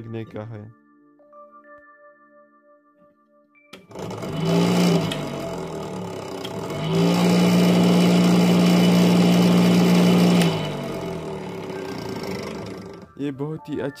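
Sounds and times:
motor hum and whine: 0:03.9 - 0:13.0.

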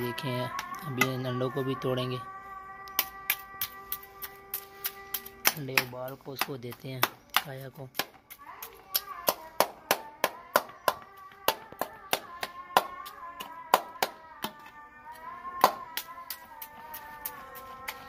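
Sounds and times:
music with held melody: 0:00.0 - 0:06.4, 0:12.8 - 0:18.0.

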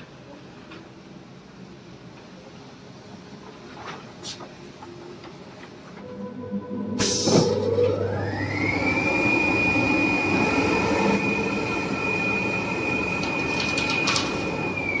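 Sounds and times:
cutting machine motor whine: 0:06.0 - 0:15.0
machine mechanical noise: 0:09.4 - 0:15.0.

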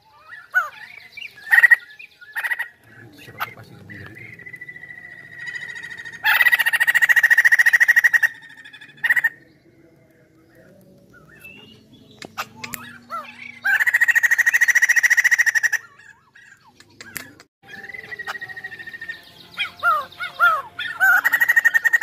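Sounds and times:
bird rattling calls: 0:01.4 - 0:09.4, 0:12.3 - 0:17.5
soft gliding whistled notes: 0:03.2 - 0:06.1, 0:08.4 - 0:13.6, 0:17.6 - 0:21.2
sharp clicks: 0:12.1 - 0:12.9, 0:16.7 - 0:17.5.

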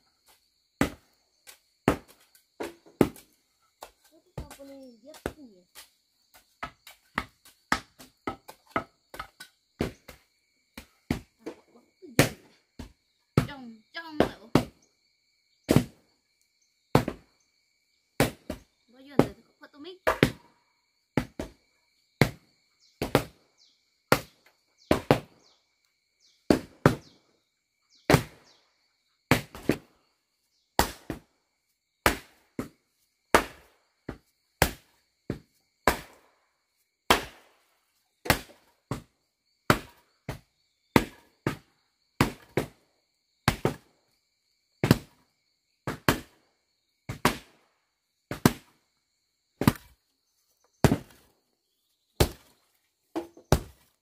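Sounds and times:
wooden paddle thudding on earth: 0:00.8 - 0:05.8, 0:15.7 - 0:16.0, 0:16.9 - 0:17.3, 0:18.2 - 0:20.5, 0:21.2 - 0:21.6, 0:22.2 - 0:25.6, 0:26.2 - 0:27.2, 0:29.3 - 0:29.9, 0:32.0 - 0:36.2, 0:38.2 - 0:39.1, 0:39.7 - 0:42.8, 0:43.4 - 0:43.9, 0:44.8 - 0:45.2, 0:45.8 - 0:46.4, 0:47.1 - 0:47.6, 0:48.3 - 0:48.8, 0:49.6 - 0:50.0, 0:50.6 - 0:51.3, 0:52.1 - 0:54.0.

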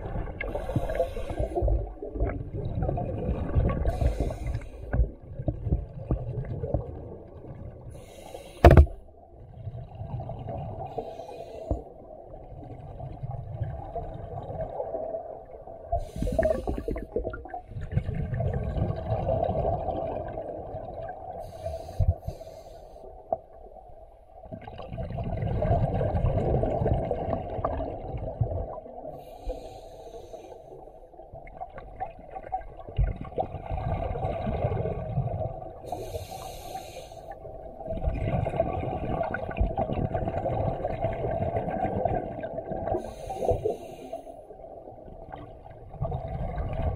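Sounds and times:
exhaled bubbles rushing: 0:00.0 - 0:07.9, 0:12.4 - 0:21.4, 0:24.5 - 0:29.1, 0:31.5 - 0:35.8, 0:37.6 - 0:43.1, 0:45.2 - 0:46.9
scuba regulator inhale hiss: 0:00.5 - 0:01.7, 0:03.9 - 0:04.9, 0:08.0 - 0:08.9, 0:11.0 - 0:11.9, 0:16.0 - 0:17.1, 0:21.4 - 0:23.1, 0:29.2 - 0:30.8, 0:35.9 - 0:37.4, 0:43.0 - 0:44.4.

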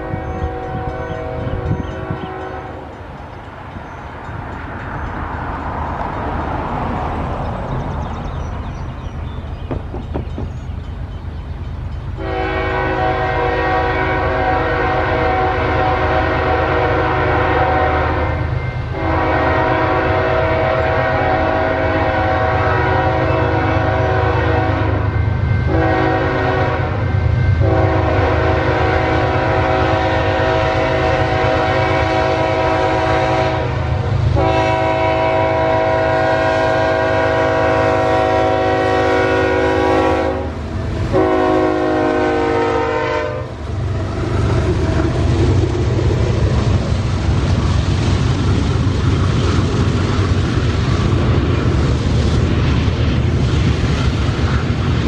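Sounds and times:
locomotive air horn blasts: 0:00.0 - 0:03.0, 0:12.2 - 0:44.3
diesel locomotive engine rumble: 0:00.0 - 0:55.0.

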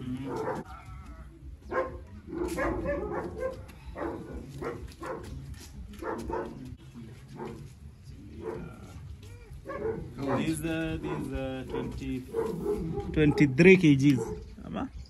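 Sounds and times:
dog barking: 0:00.2 - 0:00.8, 0:01.7 - 0:05.3, 0:06.0 - 0:06.6, 0:07.4 - 0:07.7, 0:08.4 - 0:09.0, 0:09.6 - 0:14.5.

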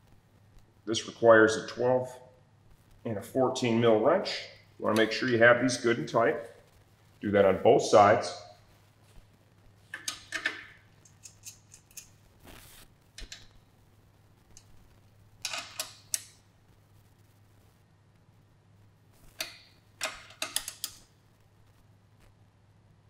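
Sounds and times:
steady low hum: 0:00.0 - 0:23.0
wrenches clinking on metal nut: 0:10.0 - 0:11.9, 0:15.4 - 0:16.2.

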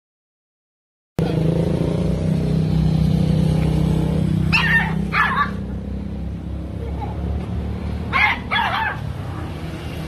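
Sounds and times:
small dog yapping: 0:04.5 - 0:05.7, 0:08.1 - 0:09.1.

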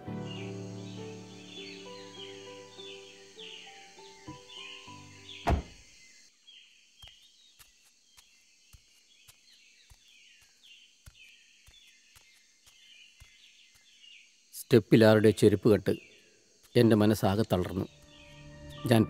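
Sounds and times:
background music: 0:00.0 - 0:05.7, 0:17.6 - 0:19.0
bird chirps: 0:00.0 - 0:19.0
heavy thump: 0:05.5 - 0:05.8
footsteps on paving stones: 0:06.5 - 0:14.4, 0:16.6 - 0:19.0.

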